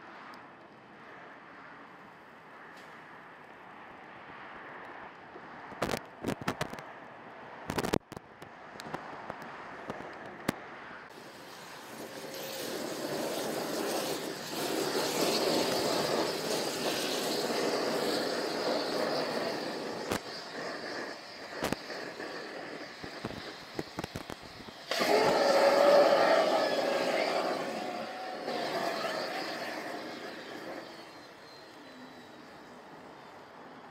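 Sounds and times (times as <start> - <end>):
steady rushing noise: 1.0 - 33.8
fire popping and crackling: 5.8 - 6.8, 7.7 - 10.5, 20.0 - 26.2.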